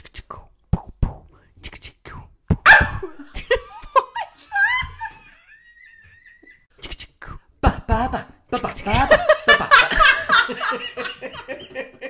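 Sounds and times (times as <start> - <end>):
mouth clicks: 0.0 - 3.0, 6.8 - 7.5
vocal beatboxing and mouth noises: 0.0 - 3.0, 6.7 - 9.1
laughter: 2.7 - 6.7, 8.9 - 12.0.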